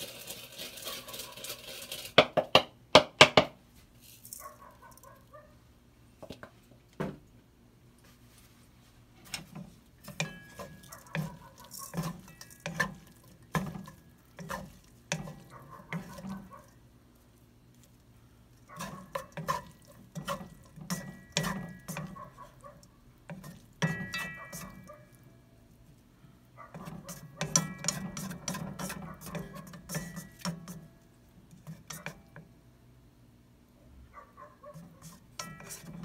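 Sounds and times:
utensils clacking in wok: 0:09.3 - 0:16.5, 0:18.8 - 0:22.4, 0:23.3 - 0:24.9, 0:26.8 - 0:30.9, 0:35.0 - 0:36.0.

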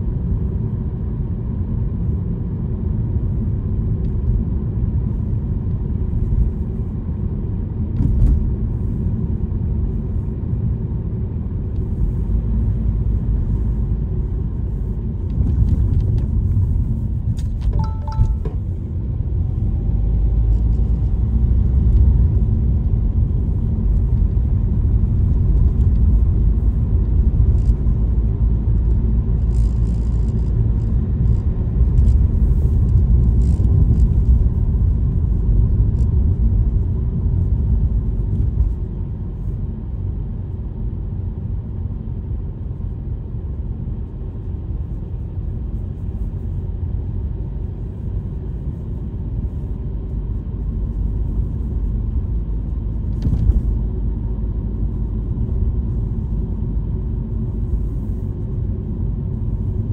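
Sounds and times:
car engine and road noise: 0:00.0 - 0:59.9
short tones: 0:17.8 - 0:18.7.

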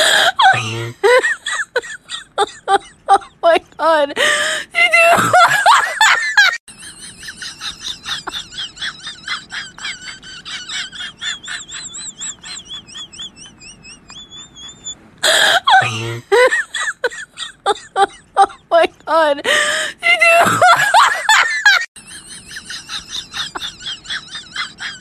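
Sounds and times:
high-pitched rhythmic laughter: 0:05.0 - 0:19.1, 0:20.2 - 0:25.0.

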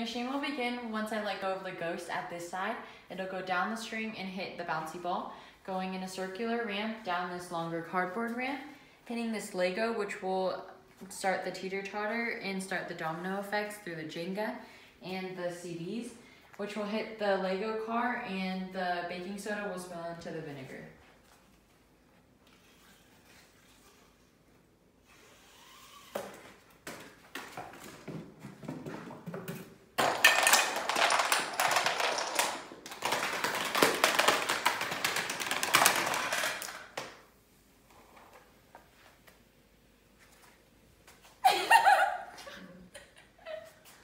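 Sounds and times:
cases and blocks toppling clatter: 0:28.4 - 0:37.0.

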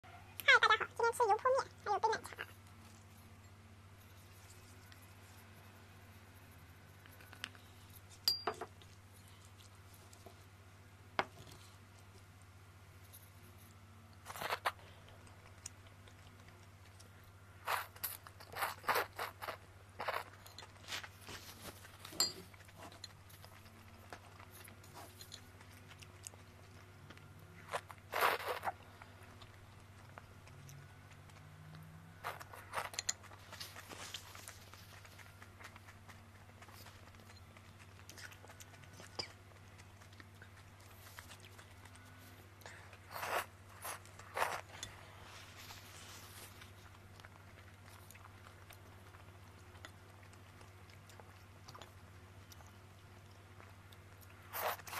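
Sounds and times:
low steady hum: 0:00.0 - 0:54.9
faint chewing: 0:00.4 - 0:54.9
noodles slurping: 0:27.6 - 0:29.1, 0:37.8 - 0:45.0.

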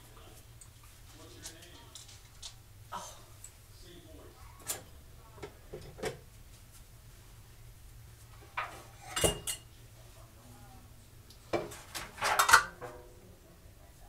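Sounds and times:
metal cutlery clinking: 0:08.6 - 0:09.7.

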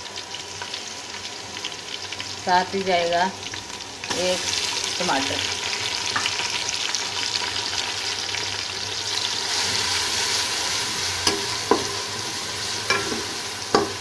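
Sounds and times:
food sizzling in hot oil: 0:00.0 - 0:14.0
spoon knocking against pot: 0:12.9 - 0:14.0.

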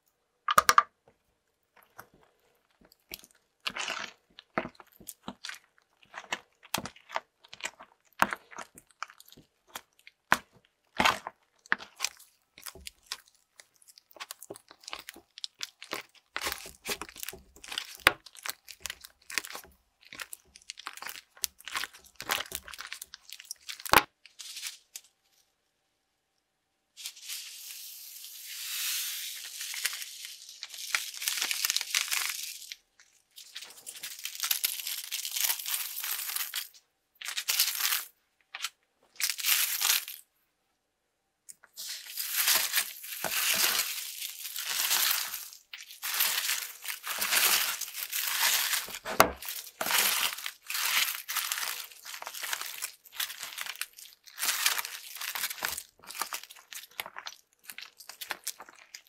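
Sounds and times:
hands squishing slime: 0:01.8 - 0:24.2, 0:30.6 - 0:40.1, 0:41.5 - 0:59.0
styrofoam beads pouring: 0:27.0 - 0:32.8, 0:41.8 - 0:56.7.

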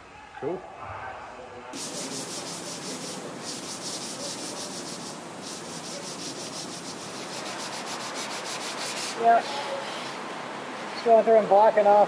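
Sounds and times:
sanding block rubbing: 0:01.8 - 0:10.1.

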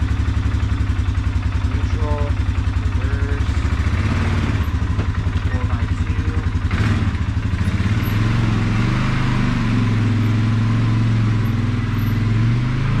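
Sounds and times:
quad bike engine running: 0:00.0 - 0:13.0.

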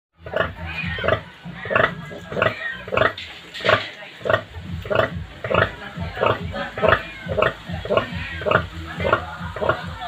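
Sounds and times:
sow grunting rhythmically: 0:04.4 - 0:10.0.

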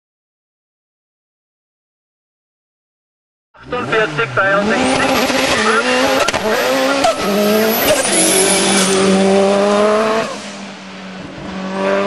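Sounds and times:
race car engine at high revs: 0:03.6 - 0:12.0.

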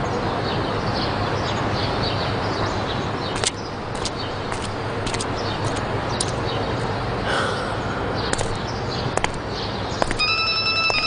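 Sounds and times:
birds chirping: 0:00.5 - 0:11.0
mobile phone electronic tone: 0:10.2 - 0:11.0.

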